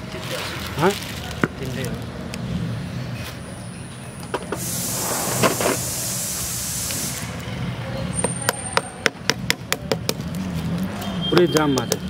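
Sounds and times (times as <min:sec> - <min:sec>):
steady spraying hiss: 0:04.5 - 0:07.6.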